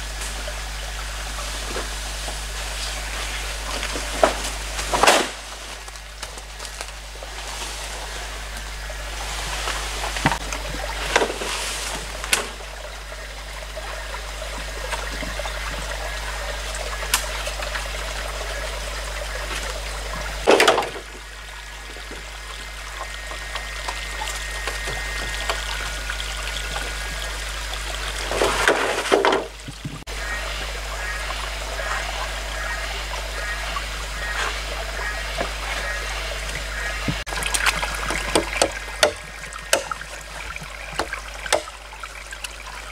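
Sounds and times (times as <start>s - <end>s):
stream trickling over rocks: 0.0s - 42.9s
bamboo poles knocking: 20.5s - 21.1s, 36.5s - 42.6s.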